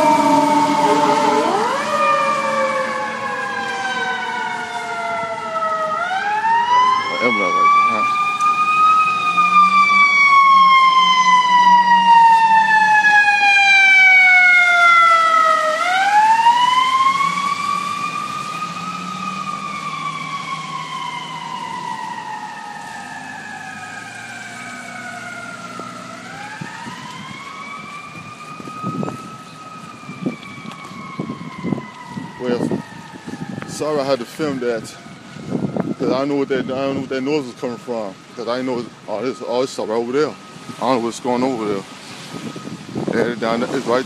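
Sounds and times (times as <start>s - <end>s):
mechanical siren wailing: 0.0s - 44.0s.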